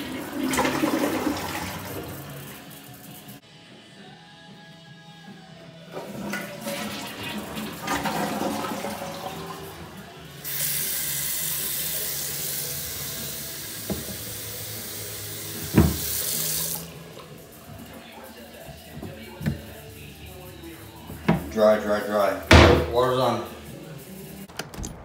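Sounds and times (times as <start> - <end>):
faucet running into sink: 0.0 - 3.4, 6.0 - 17.9.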